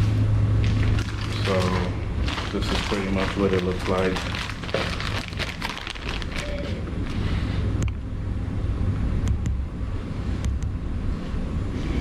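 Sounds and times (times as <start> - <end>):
low steady rumble: 0.0 - 12.0
plastic bag rustling: 0.6 - 7.4.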